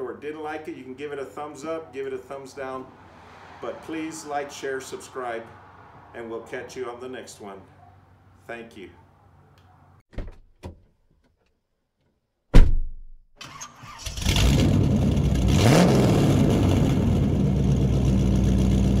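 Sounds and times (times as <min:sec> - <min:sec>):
car engine starting and running: 0:13.4 - 0:19.0.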